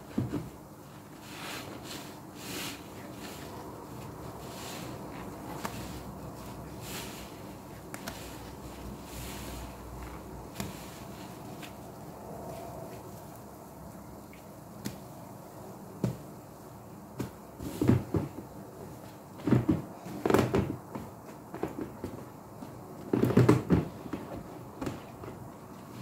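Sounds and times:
wet sponges squelching: 1.2s - 13.5s.

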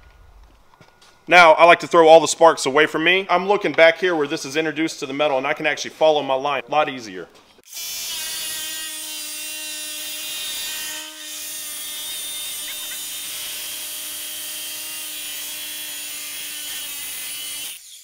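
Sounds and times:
angle grinder cutting metal: 7.7s - 18.0s.

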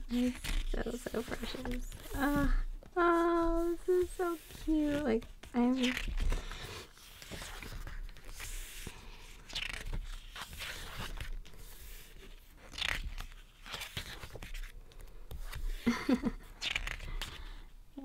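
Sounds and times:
paper pages rustling and turning: 0.0s - 17.7s.

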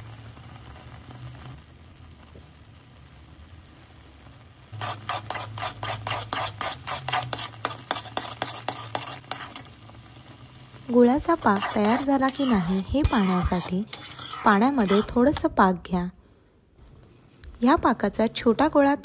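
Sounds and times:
syrup bubbling in a pan: 0.0s - 15.7s
spatula scraping a pan: 4.8s - 9.8s, 10.9s - 15.6s.

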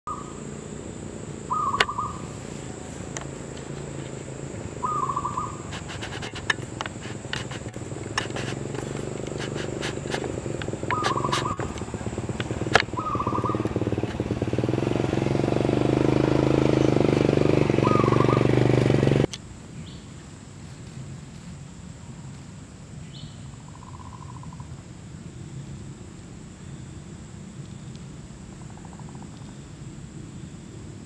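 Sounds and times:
low motor rumble: 0.1s - 19.3s
dove cooing: 1.4s - 14.3s, 17.8s - 18.5s
sharp clicks: 5.7s - 12.9s.

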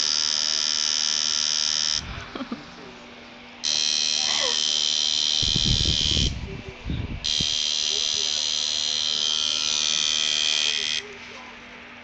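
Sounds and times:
tattoo machine buzzing: 0.0s - 2.4s, 3.6s - 6.5s, 7.2s - 11.2s.

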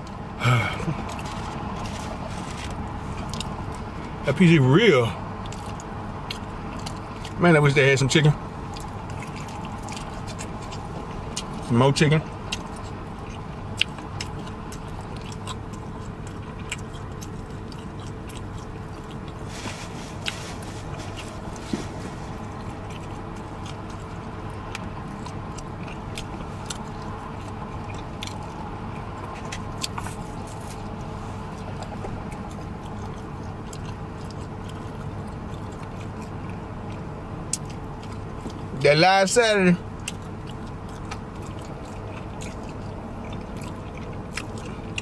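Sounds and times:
chewing and gnawing: 0.0s - 45.0s
low car cabin hum: 0.0s - 45.0s
mouth smacks and clicks: 8.7s - 38.8s, 39.8s - 45.0s.

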